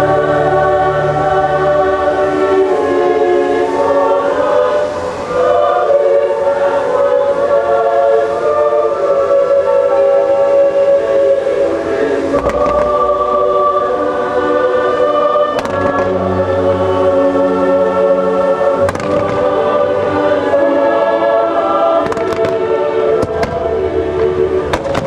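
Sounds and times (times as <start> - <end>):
choir singing chords: 0.0 - 25.0
orchestral show music: 0.0 - 25.0
firework bangs: 15.6 - 16.1, 22.0 - 23.7, 24.7 - 25.0.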